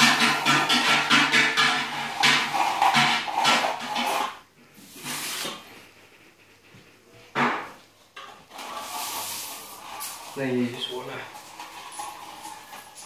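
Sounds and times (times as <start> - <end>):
trowel scraping on hawk: 0.0 - 5.8, 8.5 - 13.0.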